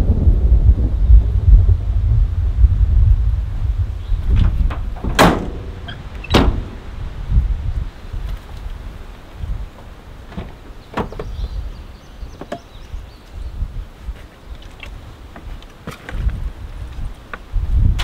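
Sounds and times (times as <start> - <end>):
low rumble: 0.0 - 8.8
truck door opening: 4.2 - 7.0, 10.2 - 11.6.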